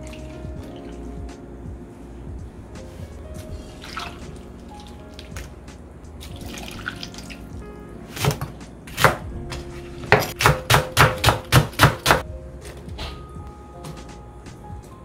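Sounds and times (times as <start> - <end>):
background music: 0.0 - 15.0.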